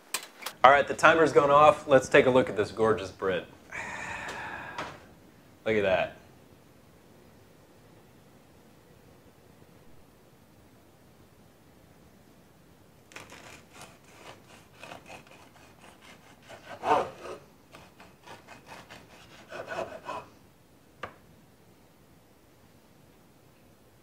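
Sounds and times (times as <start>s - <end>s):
knife sawing through bread crust: 13.1s - 20.3s.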